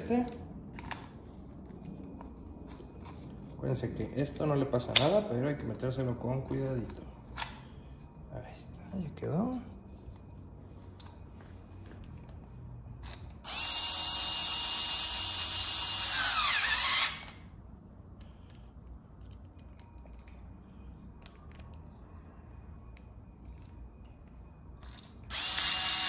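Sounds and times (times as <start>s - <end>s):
electric drill motor running: 13.4s - 17.4s, 25.3s - 26.0s.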